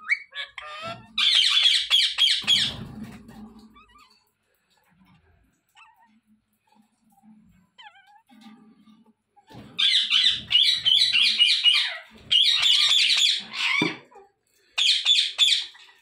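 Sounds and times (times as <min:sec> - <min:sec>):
parrots chattering: 0:00.0 - 0:04.2, 0:09.7 - 0:14.2, 0:14.8 - 0:16.0.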